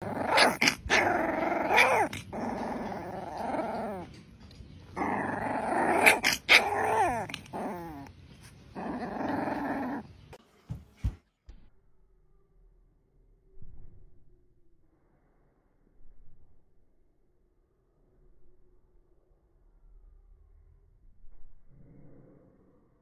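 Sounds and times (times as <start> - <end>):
puppy yipping: 0.0 - 4.0, 5.0 - 8.1
puppy growling: 0.0 - 10.3.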